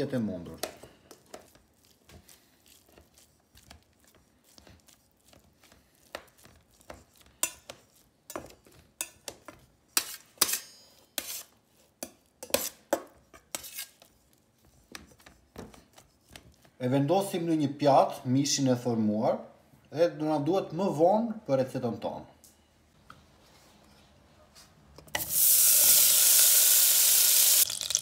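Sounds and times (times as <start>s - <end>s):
knife chopping in metal bowl: 0.5s - 16.6s.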